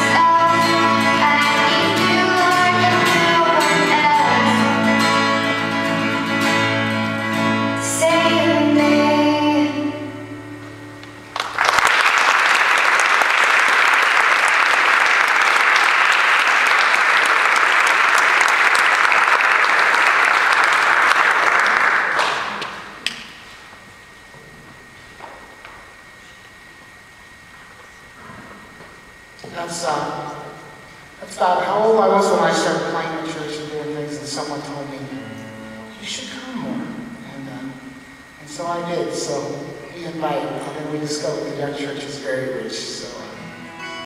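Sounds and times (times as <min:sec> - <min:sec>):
girl singing: 0:00.0 - 0:04.9, 0:07.8 - 0:10.2
strummed acoustic guitar: 0:00.0 - 0:11.2, 0:32.2 - 0:37.2, 0:42.7 - 0:44.0
audience applause: 0:11.3 - 0:23.2.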